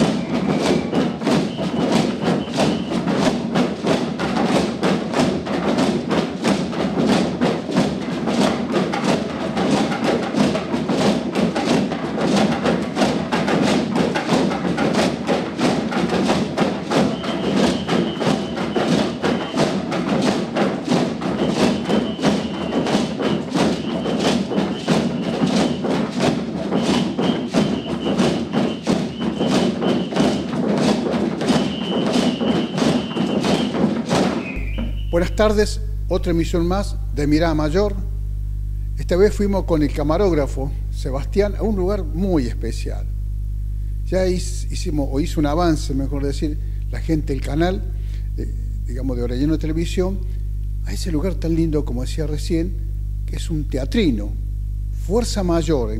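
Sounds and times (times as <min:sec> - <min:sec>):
hand drums playing fast beat: 0:00.0 - 0:36.1
high held tone: 0:34.4 - 0:42.7.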